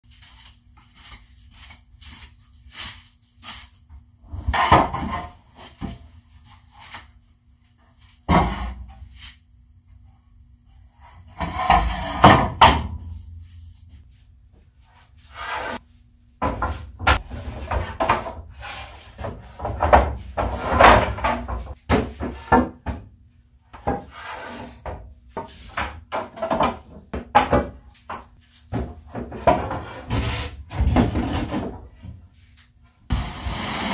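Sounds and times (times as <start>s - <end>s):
faint steady hum: 0.1s - 33.9s
wooden boards knocking and clattering: 4.5s - 6.0s, 11.4s - 13.1s, 16.4s - 18.5s, 19.2s - 23.1s, 24.8s - 32.1s.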